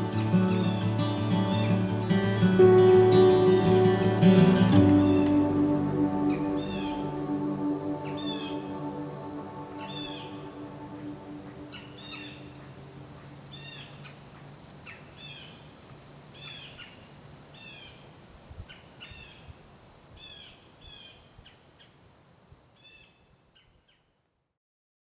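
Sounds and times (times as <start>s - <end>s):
faint outdoor hiss: 0.0s - 24.6s
bird calling: 4.7s - 14.2s.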